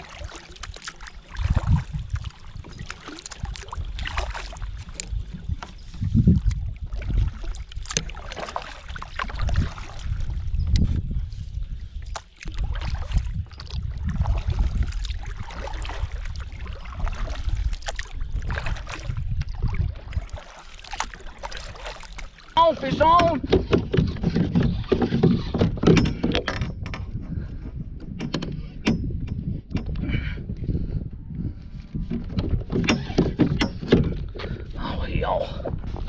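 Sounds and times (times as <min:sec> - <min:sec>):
splashes and drips: 0:00.0 - 0:10.9, 0:12.0 - 0:25.1
paddle strokes in water: 0:00.0 - 0:28.8, 0:31.5 - 0:36.0
low rumbles: 0:22.5 - 0:36.0.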